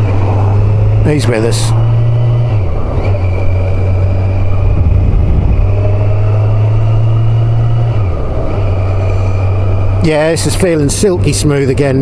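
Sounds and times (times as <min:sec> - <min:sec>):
motorcycle engine running: 0:00.0 - 0:11.9.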